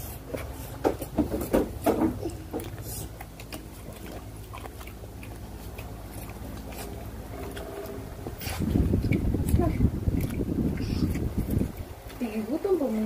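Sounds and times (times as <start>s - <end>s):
person chewing food: 0.0s - 12.2s
low steady hum: 0.0s - 13.0s
wet mouth clicks and smacks: 8.9s - 12.2s.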